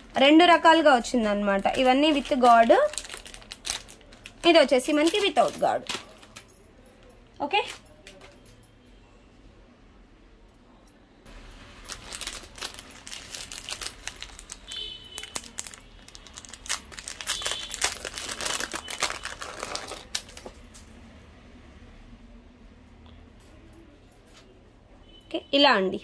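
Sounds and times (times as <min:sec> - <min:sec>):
plastic packet crinkling: 0:01.6 - 0:06.5, 0:11.5 - 0:20.6.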